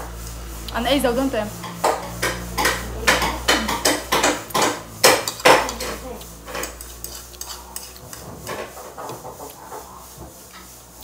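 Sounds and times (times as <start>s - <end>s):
fork scraping a ceramic plate: 5.3s - 11.0s.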